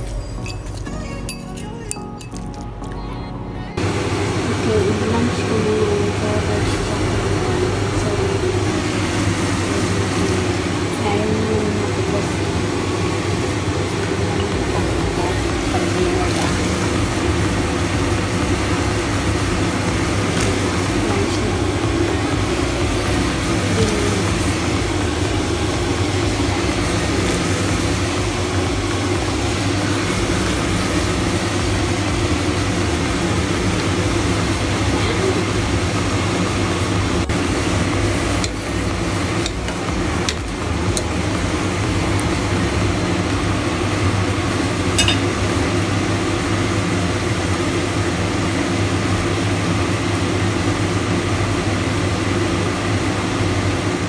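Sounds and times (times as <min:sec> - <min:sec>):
kitchen droning hum: 0:00.0 - 0:54.0
pot of vegetables boiling: 0:03.8 - 0:54.0.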